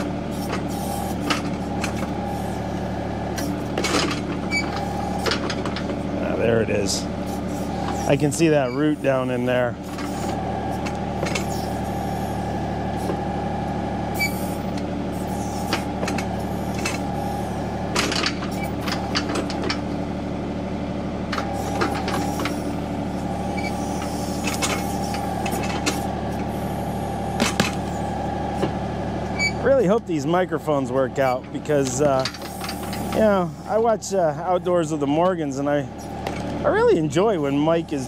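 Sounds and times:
backhoe bucket clunks and knocks: 0.0s - 2.2s, 3.4s - 6.1s, 9.8s - 11.6s, 15.7s - 17.3s, 17.9s - 20.0s, 21.3s - 22.7s, 23.5s - 26.5s, 27.3s - 28.0s, 31.2s - 33.3s
tractor diesel engine running: 0.0s - 38.0s.

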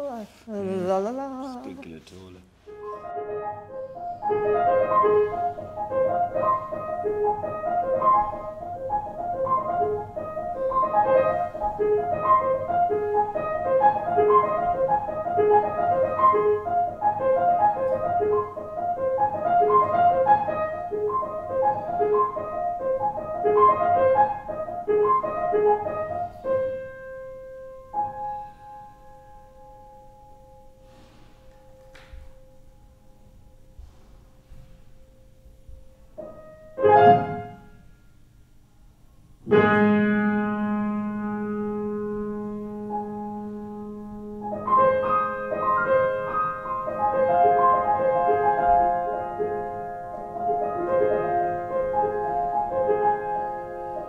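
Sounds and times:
fast piano-like keyboard notes: 2.8s - 30.8s.

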